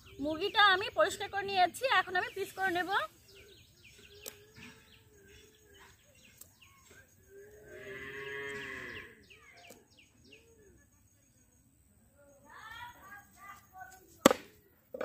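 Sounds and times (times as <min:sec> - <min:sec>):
small birds chirping: 0:00.0 - 0:15.0
cow mooing: 0:07.5 - 0:09.2.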